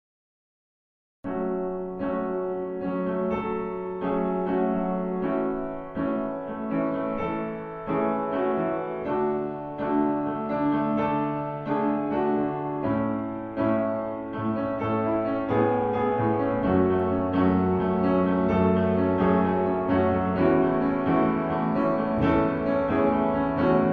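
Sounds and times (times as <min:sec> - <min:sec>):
slow gentle piano music: 0:01.3 - 0:23.9.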